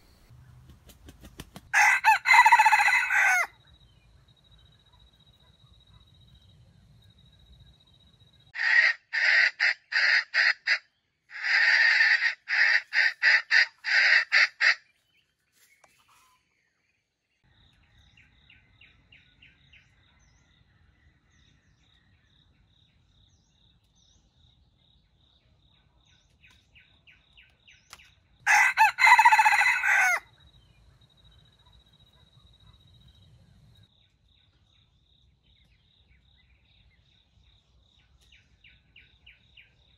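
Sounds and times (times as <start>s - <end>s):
rooster crowing: 1.7s - 3.6s, 28.5s - 30.3s.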